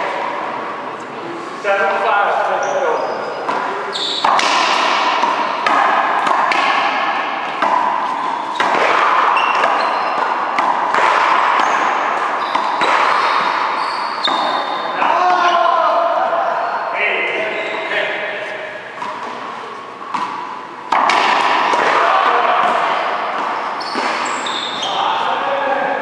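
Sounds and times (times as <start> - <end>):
sneaker squeaks: 2.3 - 15.3, 16.4 - 26.0
ball hitting racquet and wall: 2.6 - 16.4, 17.1 - 26.0.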